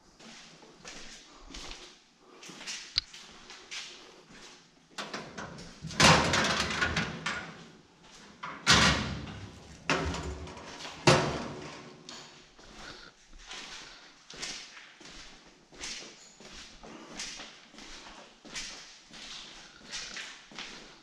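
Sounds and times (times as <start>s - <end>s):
metal locker clangs: 5.0s - 7.6s, 8.4s - 12.4s.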